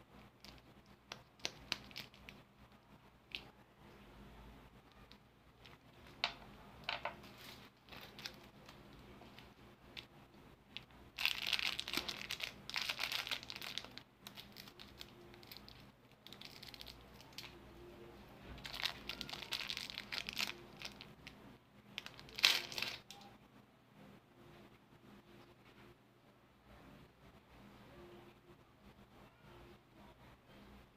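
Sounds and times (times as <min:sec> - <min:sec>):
plastic wrapper crinkling: 0:00.4 - 0:02.4, 0:07.0 - 0:10.1, 0:10.7 - 0:17.6, 0:18.6 - 0:21.4, 0:22.0 - 0:23.2.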